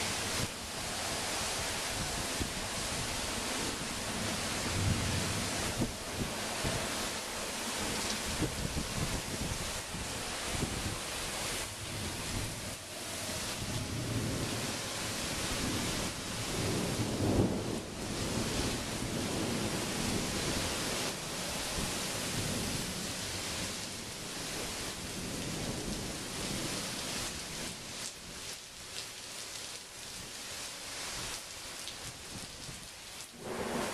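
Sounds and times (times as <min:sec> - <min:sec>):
strong wind: 0:00.0 - 0:27.3, 0:33.4 - 0:33.9
heavy rain: 0:00.0 - 0:33.9
thunder rumble: 0:33.4 - 0:33.9.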